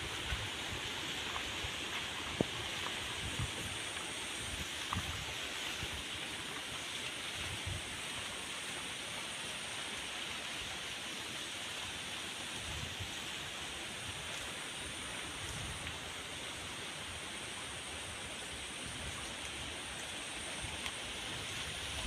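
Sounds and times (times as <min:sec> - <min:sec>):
stream water running: 0:00.0 - 0:22.0.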